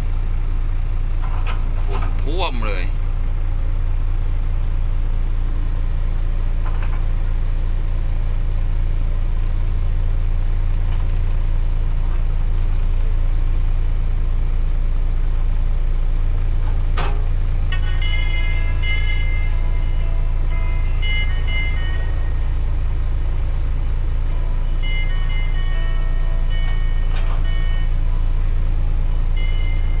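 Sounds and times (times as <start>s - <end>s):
diesel engine idling: 0.0s - 30.0s
simple melody: 17.7s - 23.5s, 24.1s - 28.6s, 29.2s - 30.0s.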